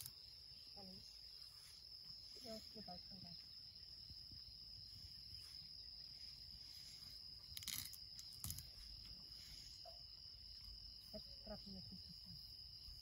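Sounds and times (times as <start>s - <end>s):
insects chirring: 0.0s - 13.0s.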